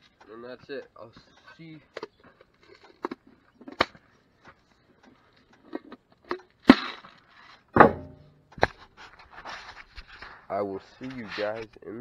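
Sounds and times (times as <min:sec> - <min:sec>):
handling knocks and clunks: 0:07.7 - 0:08.7.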